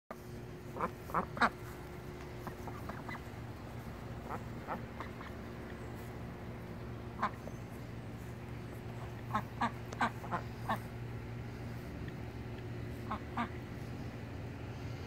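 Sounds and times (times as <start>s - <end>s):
young ducks quacking: 0.1s - 15.0s.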